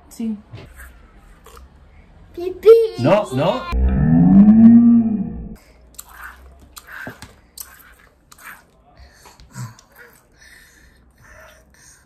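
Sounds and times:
squeeze bottle squishing: 6.0s - 8.8s.

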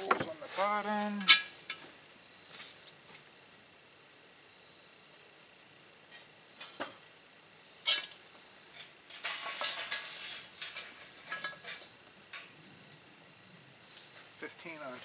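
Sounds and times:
coals clinking onto metal lid: 0.0s - 1.8s, 7.8s - 12.6s.

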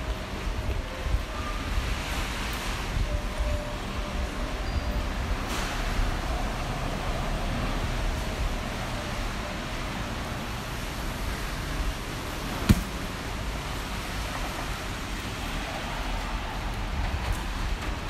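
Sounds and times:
rain hiss on city street: 0.0s - 18.0s
traffic: 0.0s - 18.0s
sharp knock: 12.7s - 13.0s.

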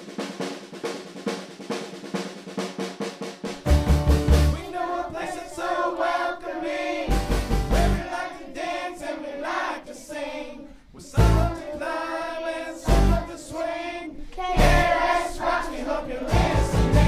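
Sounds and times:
pop backing track: 3.6s - 4.7s, 7.1s - 8.1s, 11.2s - 11.6s, 12.8s - 13.3s, 16.3s - 17.0s
deep bass hit: 3.7s - 4.6s, 11.2s - 11.6s, 14.6s - 15.1s, 16.3s - 17.0s
group singing in unison: 4.4s - 17.0s.

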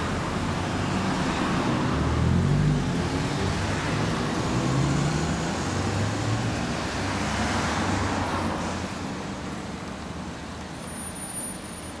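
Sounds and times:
street traffic noise: 0.0s - 12.0s.

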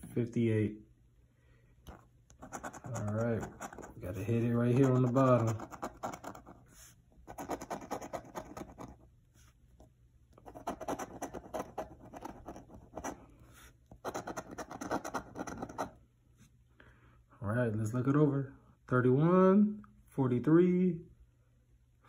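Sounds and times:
coin scraping scratch-off ticket: 2.4s - 6.5s.

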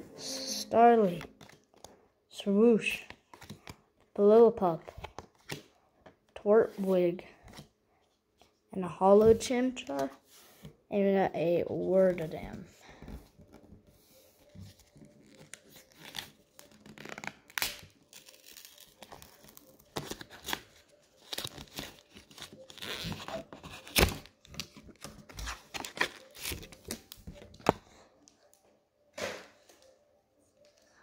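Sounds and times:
foil wrapper tearing and crinkling: 15.3s - 24.2s.

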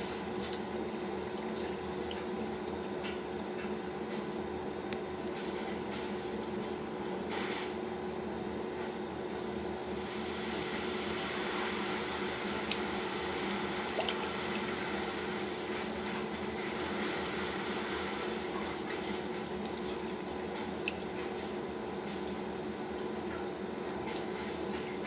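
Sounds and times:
aquarium filter hum: 0.0s - 25.0s
water trickling and bubbling: 0.3s - 3.9s, 12.6s - 25.0s
drip-like ticks: 0.4s - 3.8s, 12.6s - 12.9s, 18.9s - 22.4s.

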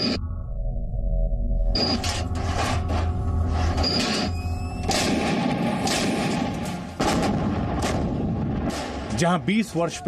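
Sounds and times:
artillery guns booming: 4.8s - 9.4s.

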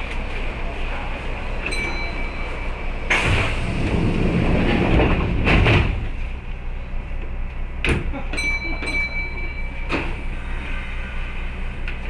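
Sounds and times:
wheel and track noise: 0.0s - 7.8s.

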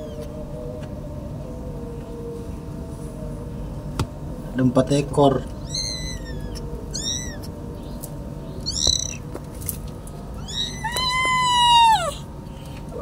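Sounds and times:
kittens mewing: 5.6s - 7.6s, 8.6s - 9.3s, 10.4s - 12.3s.

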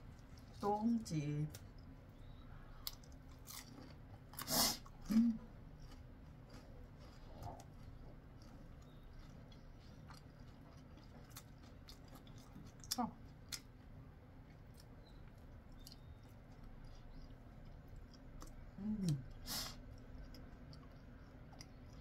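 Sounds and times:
chewing with crunching clicks: 0.0s - 22.0s
low steady hum: 0.0s - 22.0s.

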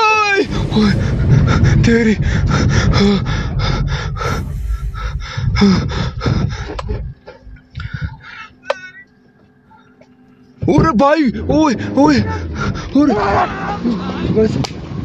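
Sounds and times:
car engine and road rumble: 0.0s - 15.0s
man panting and gasping: 0.5s - 8.6s.

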